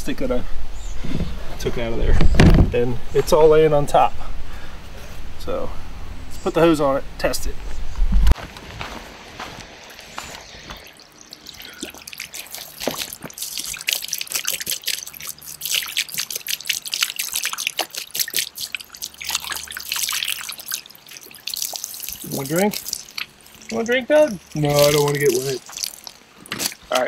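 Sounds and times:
hose water splashing on plastic: 0:09.4 - 0:27.0.

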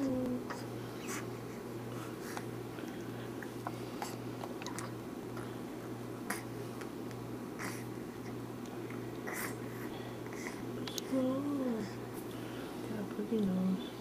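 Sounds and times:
infant lip smacks: 0:02.3 - 0:05.5, 0:10.4 - 0:11.1.

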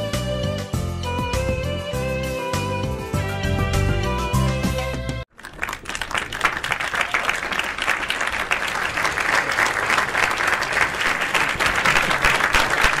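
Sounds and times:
crowd applause: 0:05.3 - 0:13.0.

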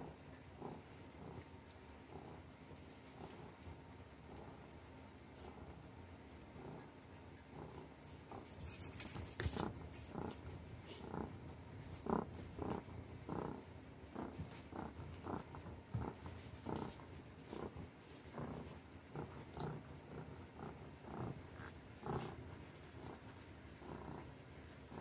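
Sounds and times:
cat purring: 0:06.5 - 0:25.0.

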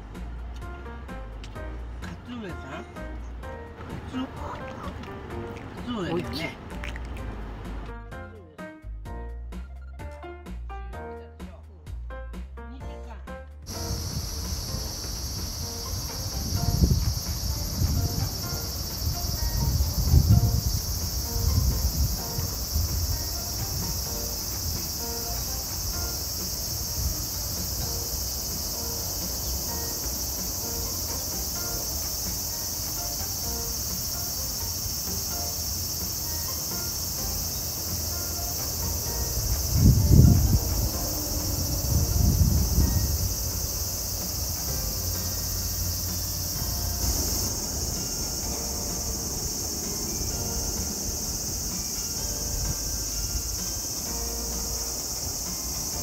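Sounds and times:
low rumbles: 0:13.6 - 0:32.9, 0:37.2 - 0:56.0
insects droning: 0:13.7 - 0:56.0.

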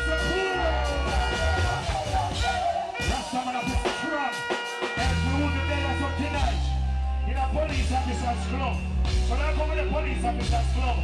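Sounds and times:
man singing: 0:00.0 - 0:04.4
deep bass line: 0:00.0 - 0:11.0
live reggae band: 0:00.0 - 0:11.0.

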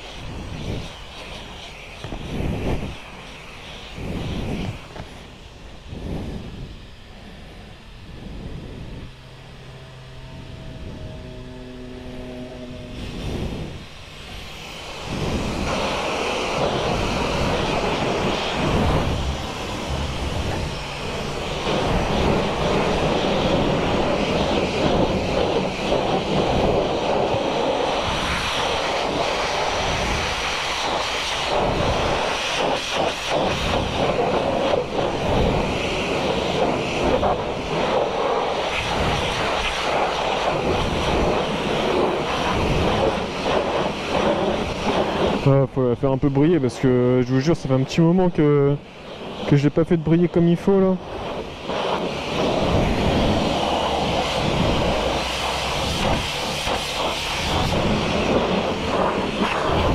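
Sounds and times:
pressure washer spray hissing: 0:12.3 - 0:45.6, 0:51.1 - 0:59.9.

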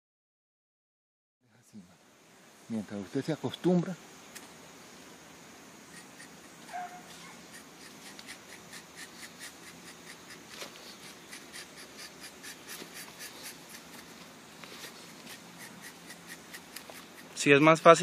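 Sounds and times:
knife scraping tree bark: 0:05.8 - 0:17.5.

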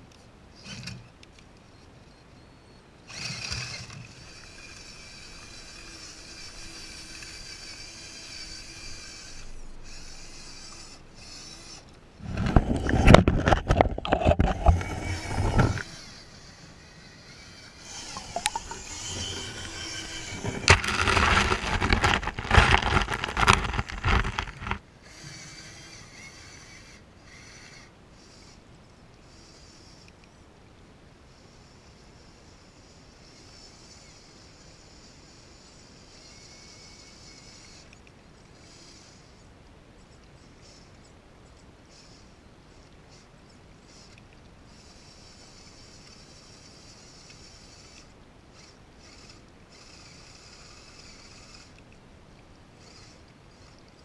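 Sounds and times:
faint motor whine: 0:00.0 - 0:54.0
splashing and scraping over rocks: 0:03.1 - 0:27.7.

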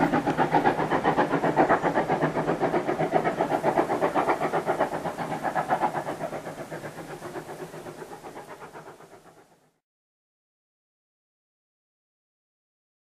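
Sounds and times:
steam train rhythmic beat: 0:00.0 - 0:09.8.

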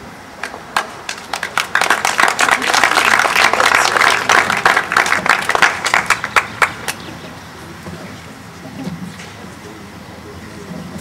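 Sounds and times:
audience applauding: 0:00.7 - 0:07.0.

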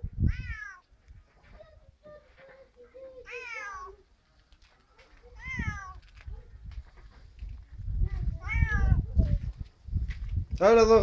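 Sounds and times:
cat meowing: 0:00.3 - 0:00.8, 0:03.3 - 0:04.0, 0:05.3 - 0:06.1, 0:08.4 - 0:09.1.

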